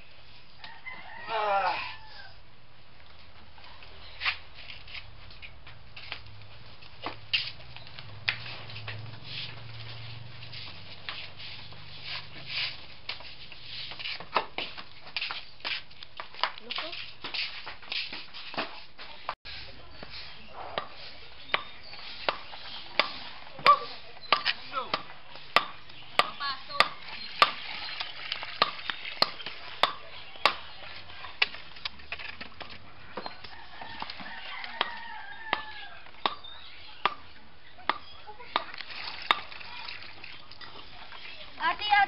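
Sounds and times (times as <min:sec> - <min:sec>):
rooster crowing faintly: 0:00.6 - 0:02.4, 0:33.0 - 0:36.1.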